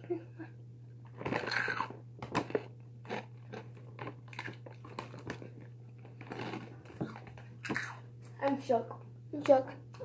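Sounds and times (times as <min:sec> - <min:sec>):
person crunching cereal: 0:01.2 - 0:08.0.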